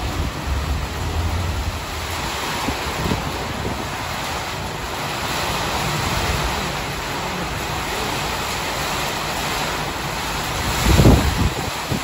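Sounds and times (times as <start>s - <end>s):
wind buffeting microphone: 0.0s - 6.9s, 9.9s - 12.0s
heavy rain: 0.0s - 12.0s.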